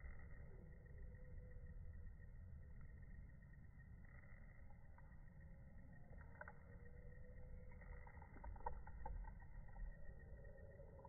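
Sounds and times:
faint ticks: 0:04.0 - 0:11.0.

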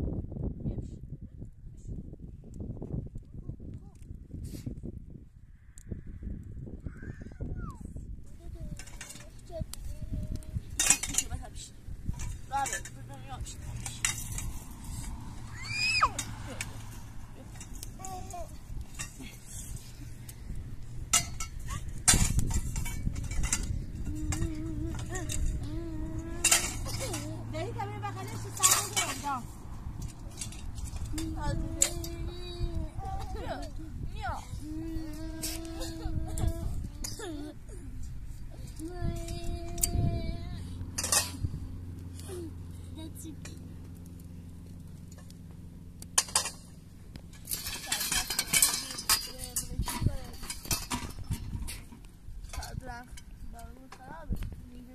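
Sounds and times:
tent poles clinking: 0:08.6 - 0:33.8, 0:40.9 - 0:42.4, 0:46.0 - 0:54.0.

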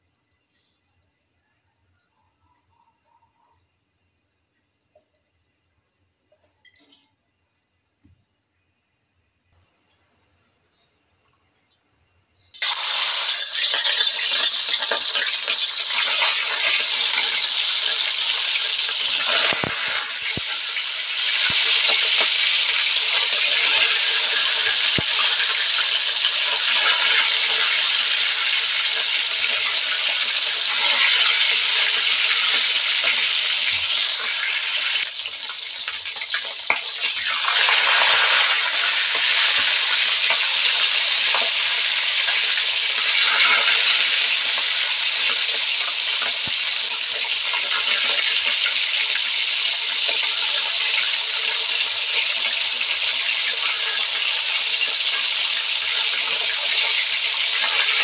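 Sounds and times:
fish sizzling in hot oil: 0:12.6 - 0:58.0.

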